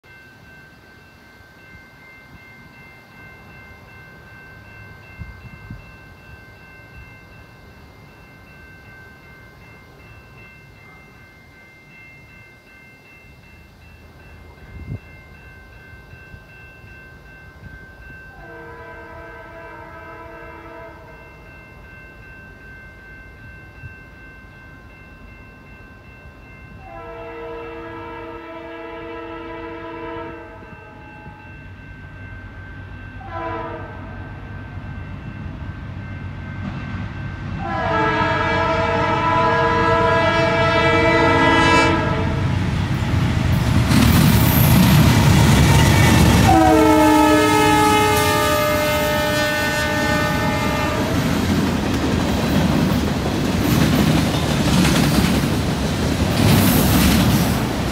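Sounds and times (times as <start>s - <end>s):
locomotive multi-note horn: 18.4s - 21.1s, 26.8s - 30.6s, 33.2s - 34.2s, 37.6s - 42.5s, 45.7s - 51.4s
diesel locomotives rumbling: 31.6s - 57.9s.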